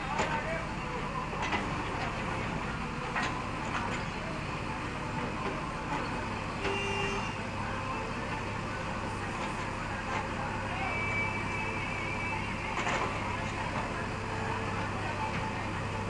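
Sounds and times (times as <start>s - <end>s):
diesel engine running under load: 0.0s - 16.0s.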